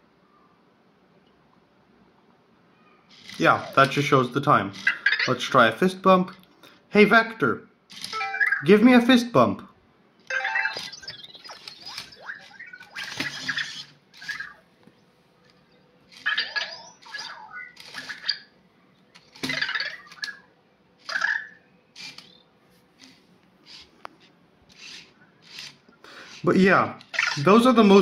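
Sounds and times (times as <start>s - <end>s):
small motors whirring: 3.1s - 4.1s, 10.8s - 14.7s, 16.1s - 18.5s, 19.1s - 20.4s, 21.0s - 22.4s, 23.0s - 27.6s
chirpy electronic robot sounds: 4.7s - 5.6s, 7.9s - 8.8s, 10.3s - 15.0s, 15.6s - 18.5s, 19.1s - 22.5s, 27.0s - 28.0s.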